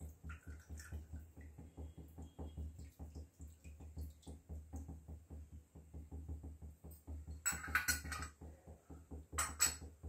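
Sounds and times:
water trickling and dripping: 0.0s - 10.0s.

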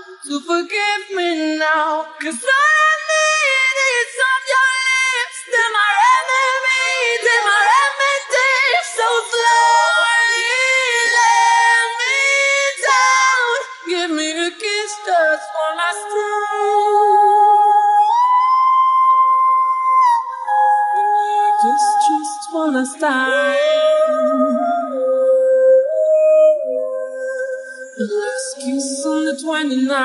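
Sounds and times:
man singing unaccompanied: 28.0s - 30.0s.

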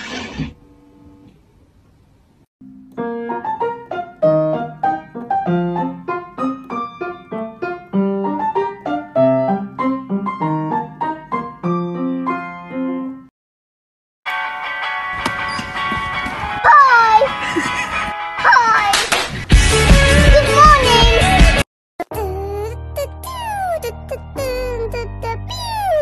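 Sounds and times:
light piano melody: 2.6s - 13.3s, 22.1s - 26.0s.

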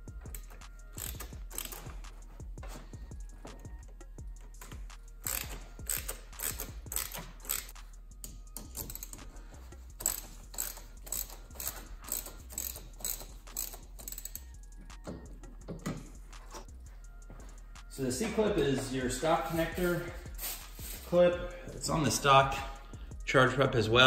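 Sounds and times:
hand ratchet clicking: 0.0s - 16.7s.

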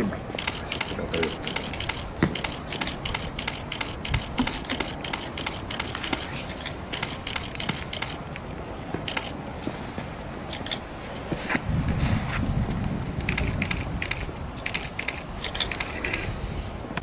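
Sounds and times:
camera shutters clicking: 0.4s - 8.4s, 9.0s - 9.4s, 13.2s - 16.3s.

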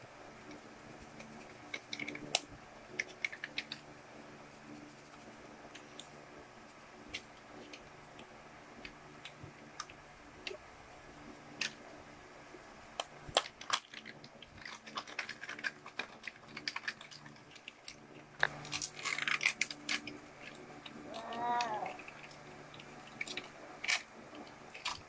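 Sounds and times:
foil wrapper crinkling: 13.3s - 20.6s, 21.2s - 25.0s.

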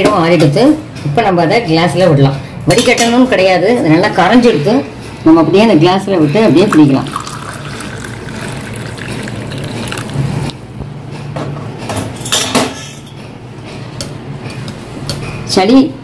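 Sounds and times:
liquid pouring into glass: 6.5s - 10.5s
metal and glass dishes clinking: 12.0s - 13.3s.

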